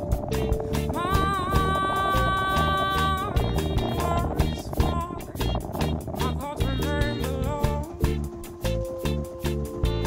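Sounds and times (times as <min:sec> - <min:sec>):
music with steady beat: 0:00.0 - 0:10.0
long held note: 0:06.5 - 0:10.0.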